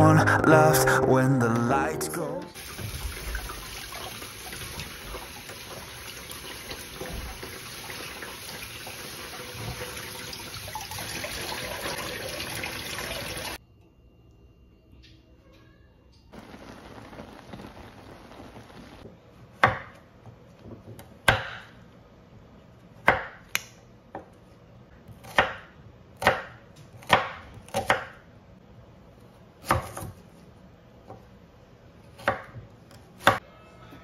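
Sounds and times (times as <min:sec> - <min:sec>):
shrimp sizzling in a pan: 0:16.4 - 0:19.0
knife chopping on wooden board: 0:20.8 - 0:21.7, 0:23.0 - 0:23.6, 0:25.1 - 0:28.2, 0:29.6 - 0:30.2.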